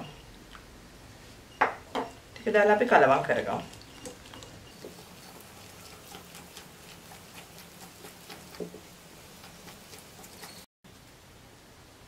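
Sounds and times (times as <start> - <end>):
whisk scraping glass bowl: 3.4 - 10.7.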